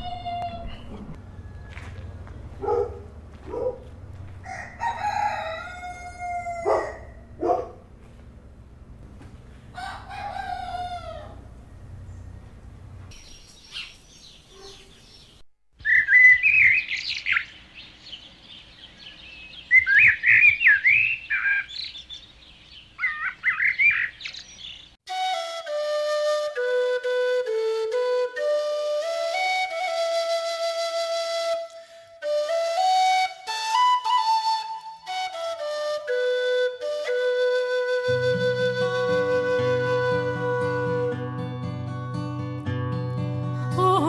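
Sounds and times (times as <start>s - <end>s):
rooster crowing: 0.4s - 2.3s, 4.4s - 7.3s, 9.7s - 11.8s
small birds chirping: 11.9s - 25.0s
flute melody: 25.1s - 41.8s.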